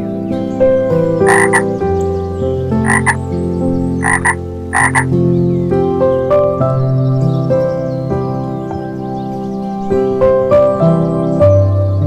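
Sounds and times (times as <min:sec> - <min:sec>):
soft background music: 0:00.0 - 0:12.0
frog croaking: 0:01.2 - 0:01.7, 0:02.7 - 0:03.2, 0:03.9 - 0:05.1.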